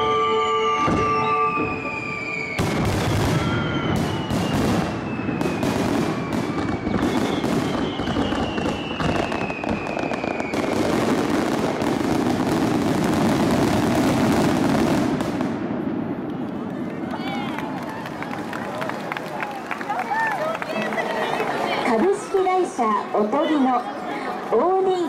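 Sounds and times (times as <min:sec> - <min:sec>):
crackling firework stars: 0:00.8 - 0:20.3.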